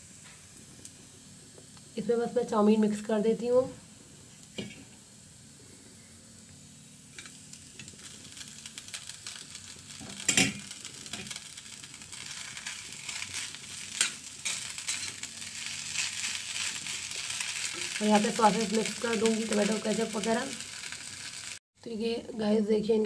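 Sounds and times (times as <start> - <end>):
vegetables sizzling in wok: 0.0 - 21.6
spatula scraping wok: 8.9 - 21.6.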